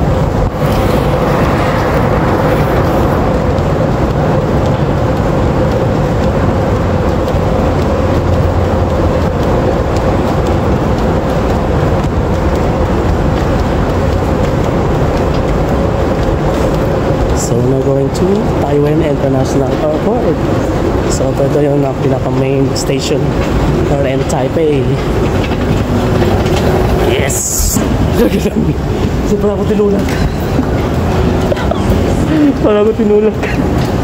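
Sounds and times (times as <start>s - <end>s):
moving walkway rumbling: 0.0s - 34.0s.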